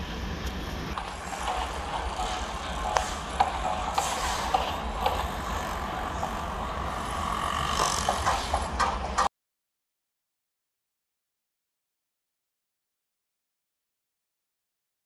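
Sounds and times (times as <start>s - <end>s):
traffic rumble: 0.0s - 9.3s
sharp clicks and knocks: 7.8s - 9.3s.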